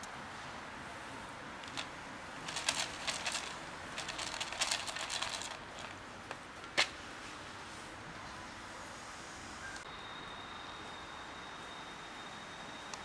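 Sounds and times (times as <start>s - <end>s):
kibble rattling in plastic tray: 1.6s - 5.9s.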